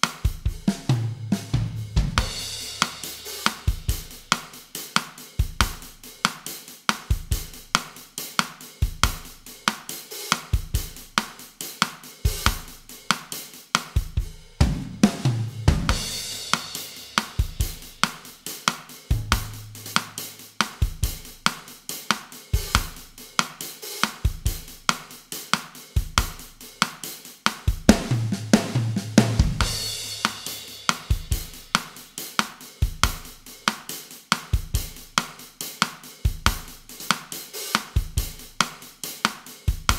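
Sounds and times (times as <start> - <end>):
drum kit bossa nova groove: 0.0 - 39.9
cymbal crash: 19.1 - 20.5
low drum fill: 19.1 - 21.2.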